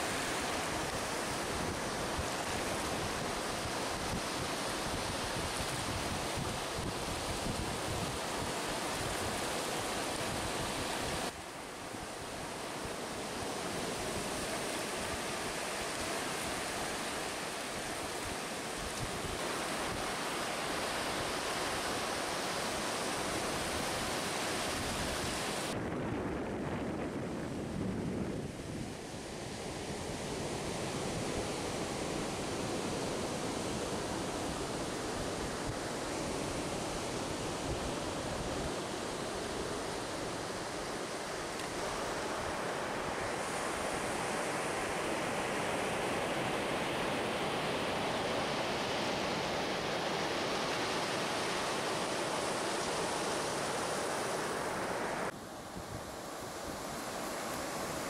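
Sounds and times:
wind on microphone: 0.0 - 11.3, 23.5 - 40.9
sea surf breaking: 0.0 - 58.0.

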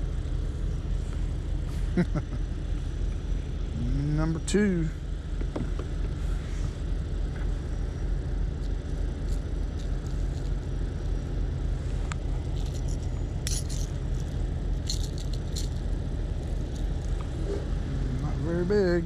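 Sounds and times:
low rumble: 0.0 - 19.0
fishing hooks clicking and rattling: 12.5 - 15.8.

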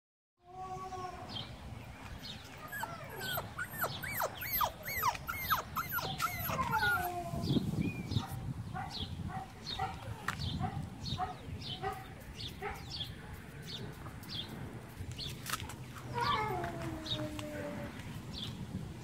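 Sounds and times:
puppy whining: 2.4 - 7.6, 16.1 - 18.0.

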